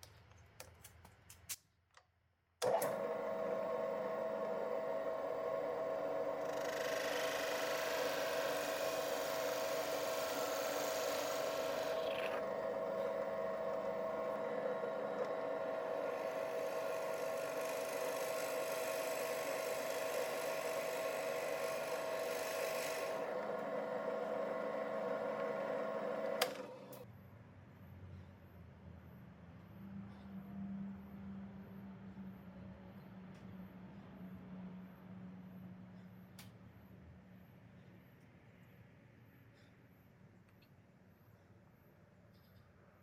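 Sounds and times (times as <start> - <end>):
drill press whining: 2.6 - 27.0
drill bit boring into wood: 3.2 - 27.0
motor switch click: 26.2 - 27.0.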